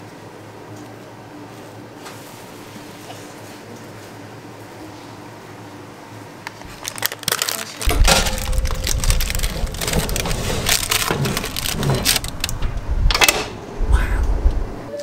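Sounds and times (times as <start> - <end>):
low rumble: 7.8 - 14.9
metal cake pan clattering on rack: 7.9 - 12.5.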